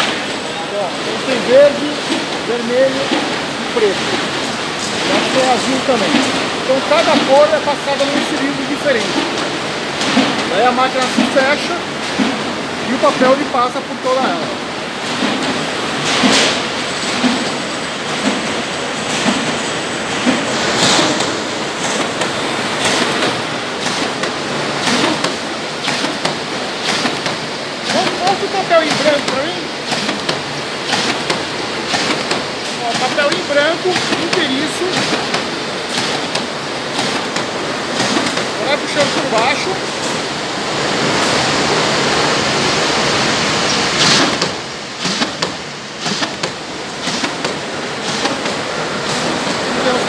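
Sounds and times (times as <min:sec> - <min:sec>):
machine rushing noise: 0:00.0 - 0:33.3.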